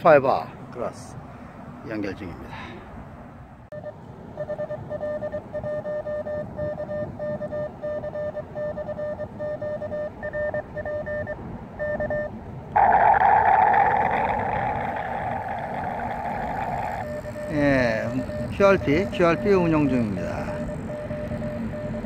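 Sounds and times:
morse code beeps: 0:03.7 - 0:12.4, 0:17.0 - 0:22.0.

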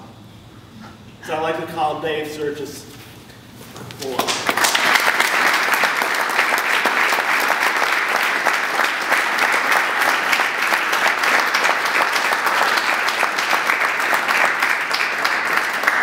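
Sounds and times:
audience applauding: 0:04.0 - 0:16.0.

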